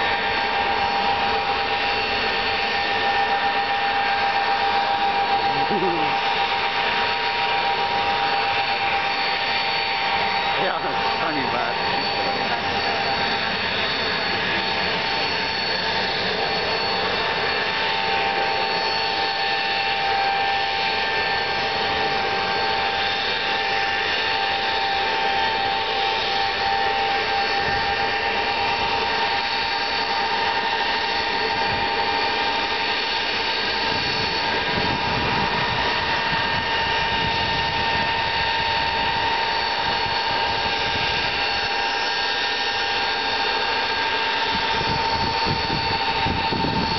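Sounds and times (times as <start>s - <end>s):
deep jet rumble: 0.0s - 18.6s, 33.3s - 42.6s, 43.8s - 46.9s
high jet engine whine: 0.0s - 46.9s
jet airliner taxiing: 0.0s - 46.9s.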